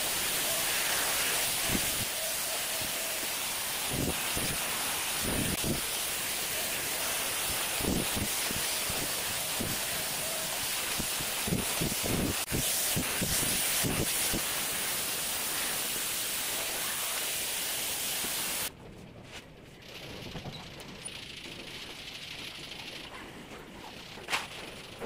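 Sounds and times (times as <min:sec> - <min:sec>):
fan air rushing hiss: 0:00.0 - 0:18.7.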